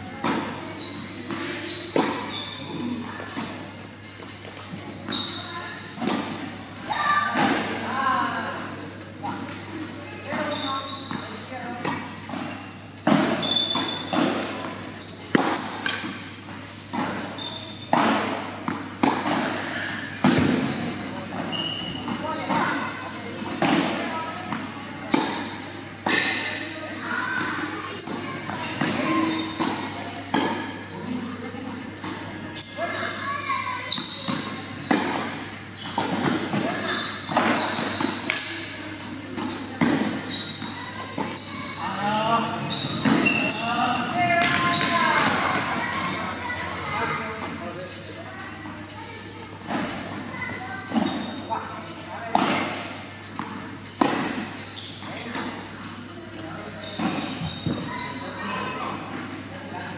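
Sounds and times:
tennis balls bouncing: 0.0s - 5.2s, 11.1s - 22.7s, 23.5s - 26.6s, 27.4s - 32.7s, 33.9s - 41.8s, 42.7s - 46.4s, 52.3s - 55.7s
tennis balls hit by rackets: 0.0s - 5.2s, 5.9s - 6.5s, 7.3s - 7.9s, 11.1s - 22.6s, 23.5s - 26.7s, 27.4s - 32.7s, 33.9s - 41.8s, 42.8s - 46.4s, 50.9s - 51.4s, 52.3s - 56.0s, 56.7s - 57.9s
shoes squeaking on court: 0.0s - 59.9s.

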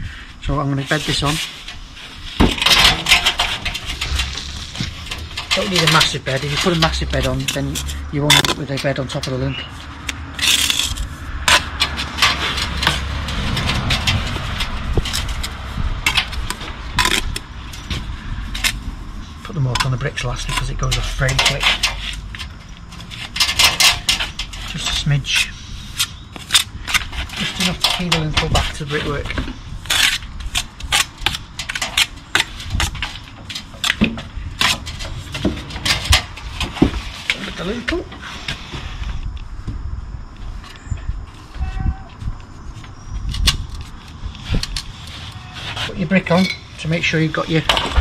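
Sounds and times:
trowel scraping mortar and brick: 0.9s - 18.8s
low rumble: 1.8s - 19.6s.

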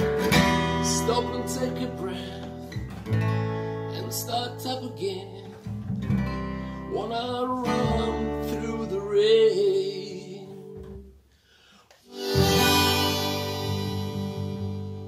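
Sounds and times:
folk band playing: 12.1s - 15.0s
strummed guitar chord: 12.1s - 15.0s.

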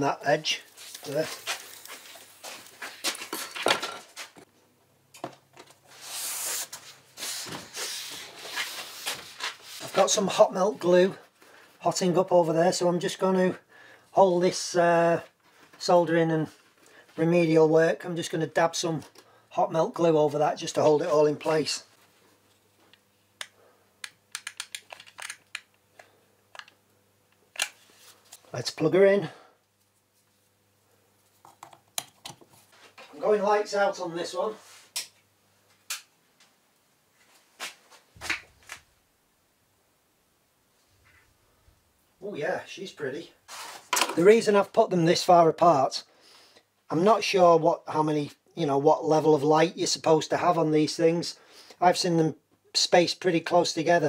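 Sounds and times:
hands rubbing on plastic sheet: 5.9s - 10.1s.

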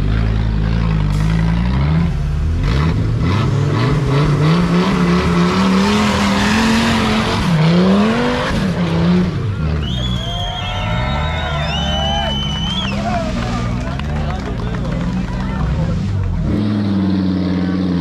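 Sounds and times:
off-road engine revving: 0.0s - 18.0s
people shouting: 9.9s - 13.9s.

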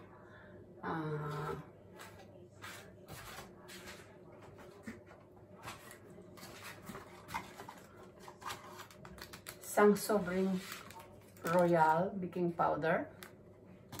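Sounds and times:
paper sachet rustling and clicking: 10.6s - 11.8s.

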